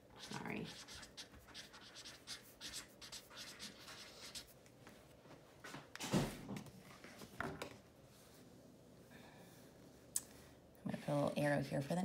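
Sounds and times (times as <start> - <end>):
marker scratching on paper: 0.2 - 4.5.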